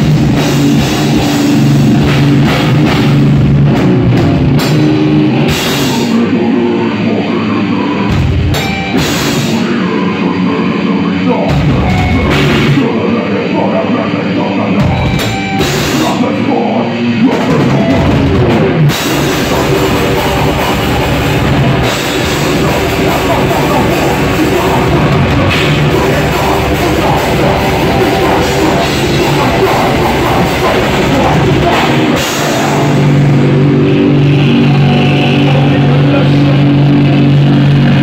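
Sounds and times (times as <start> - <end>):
bass guitar: 0.0 - 38.0
distorted electric guitars: 0.0 - 38.0
pounding drum kit with cymbals: 0.0 - 38.0.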